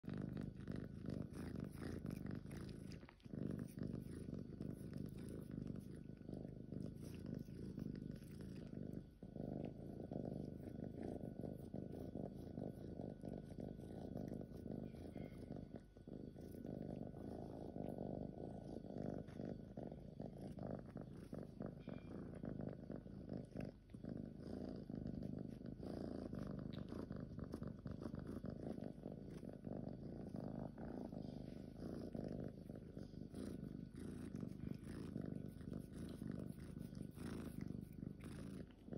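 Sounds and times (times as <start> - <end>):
kitten purring: 0.0 - 38.9.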